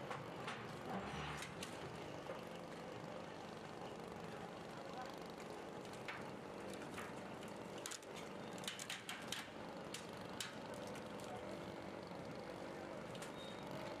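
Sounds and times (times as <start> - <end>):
steel tracks clanking and squeaking: 13.2 - 13.8.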